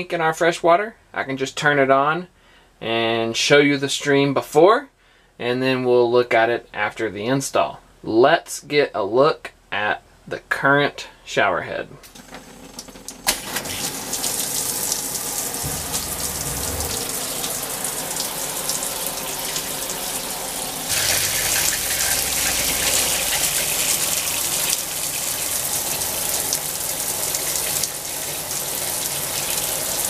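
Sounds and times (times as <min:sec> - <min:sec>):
shower head spraying water: 0:13.5 - 0:30.0.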